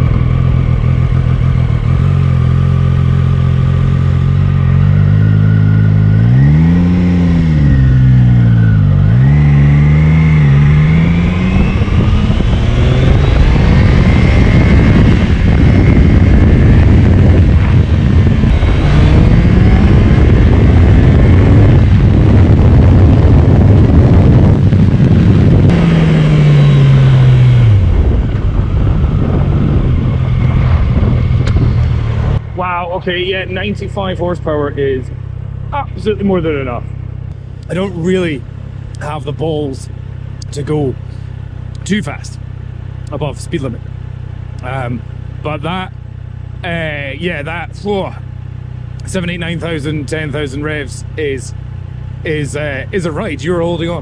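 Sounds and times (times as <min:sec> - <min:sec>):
motorcycle engine while riding: 0:00.0 - 0:54.0
rushing wind noise: 0:06.0 - 0:33.8.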